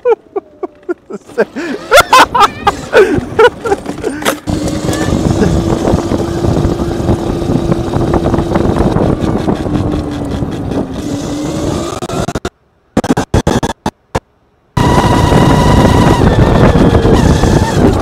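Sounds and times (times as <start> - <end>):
chain and tyre noise: 3.5 - 12.5, 14.8 - 18.0
electric go-kart motor whine: 3.9 - 12.5, 14.8 - 18.0.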